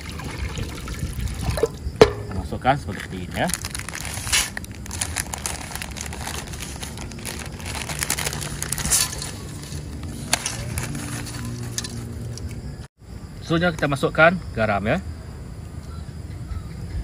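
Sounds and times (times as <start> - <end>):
dry spaghetti rattling in pan: 1.5 - 12.5
plastic packet crinkling: 2.9 - 12.5.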